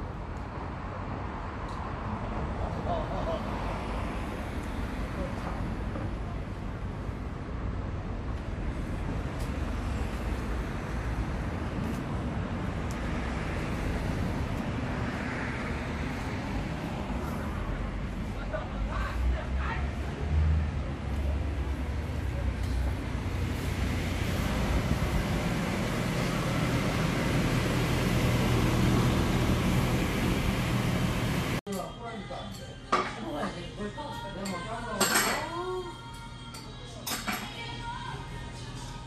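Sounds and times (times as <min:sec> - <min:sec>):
low rumble of street traffic: 0:00.0 - 0:39.0
steady rushing rumble: 0:22.9 - 0:31.6.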